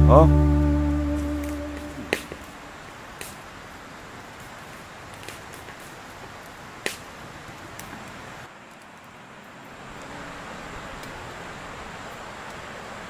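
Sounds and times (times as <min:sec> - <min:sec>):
steady outdoor hiss: 0:00.0 - 0:13.0.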